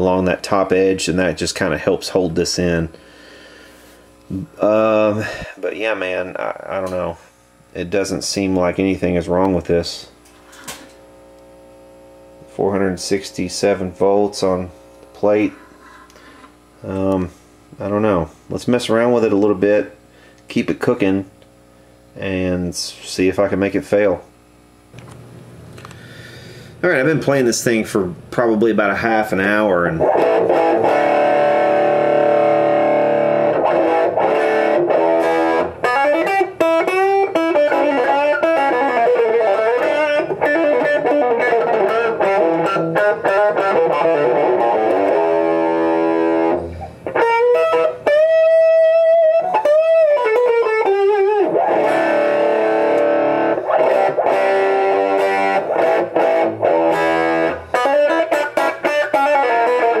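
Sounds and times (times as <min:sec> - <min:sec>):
electric guitar playing: 0:30.0 - 1:00.0.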